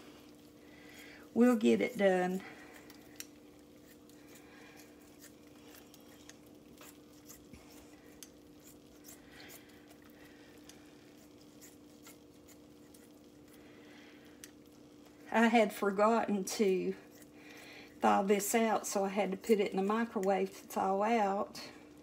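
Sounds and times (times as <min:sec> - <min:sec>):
faint steady hum: 0:00.0 - 0:22.0
scissors snipping bacon: 0:02.7 - 0:13.2.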